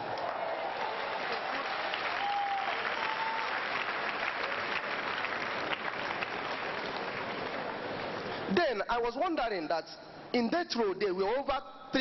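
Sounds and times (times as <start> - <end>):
congregation applauding: 0.0 - 8.5.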